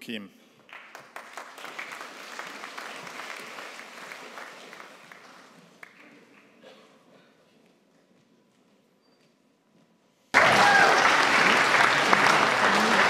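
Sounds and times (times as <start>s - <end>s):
audience applauding: 0.7s - 6.2s, 10.3s - 13.0s.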